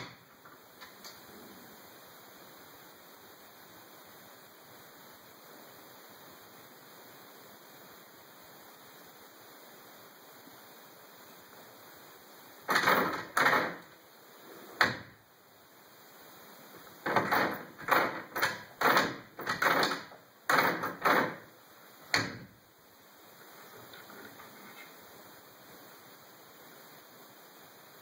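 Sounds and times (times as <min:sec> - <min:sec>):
wooden door rattling in frame: 0:12.7 - 0:13.9, 0:17.0 - 0:21.5.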